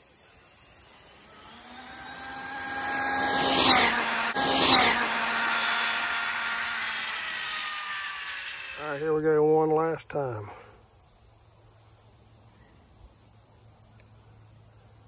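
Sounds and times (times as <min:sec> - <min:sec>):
rc car motor whining past: 0:00.8 - 0:09.7.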